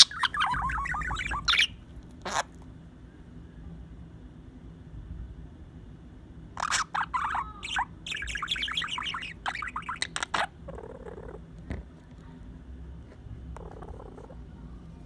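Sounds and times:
budgerigar chirping and warbling: 0.0 - 2.5, 6.6 - 11.4.

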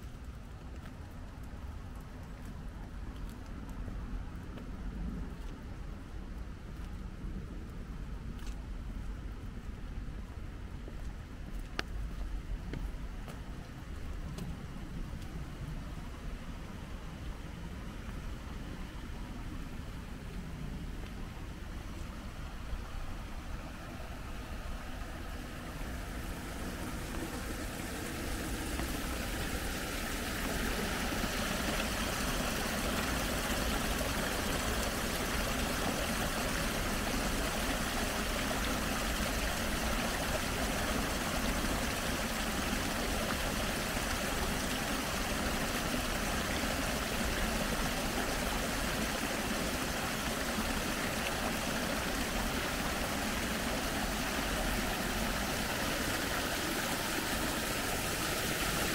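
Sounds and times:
running water: 10.8 - 58.9.

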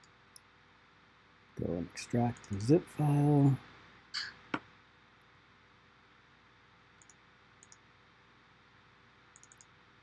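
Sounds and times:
computer mouse clicks: 2.3 - 2.6, 7.0 - 7.9, 9.3 - 9.8.

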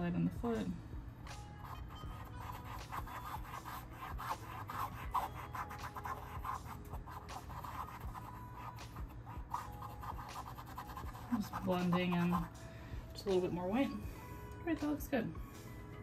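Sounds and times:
paintbrush bristles scratching: 1.6 - 12.6.

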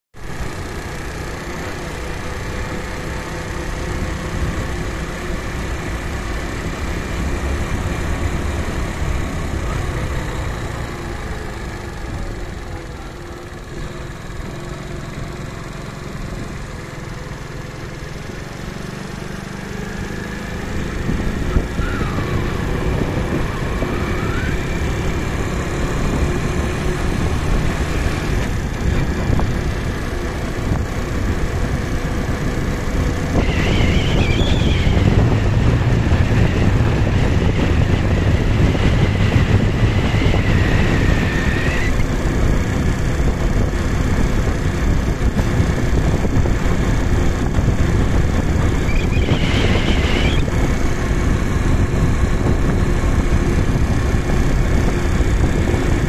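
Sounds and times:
vehicle engine and road noise: 0.0 - 56.0.

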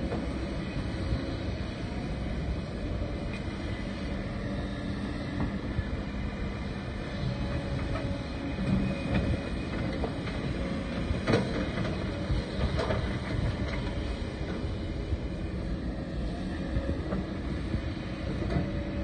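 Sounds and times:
excavator diesel engine under load: 0.0 - 19.0.

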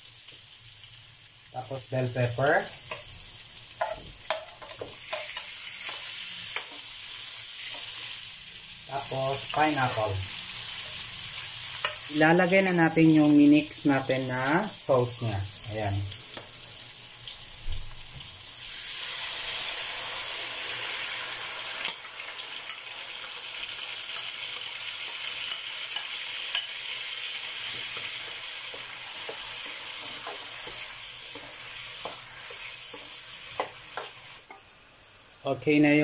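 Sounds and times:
sauce sizzling in a wok: 0.0 - 36.0
spatula clicking and scraping wok: 3.8 - 8.2, 10.6 - 12.7, 21.8 - 34.7.

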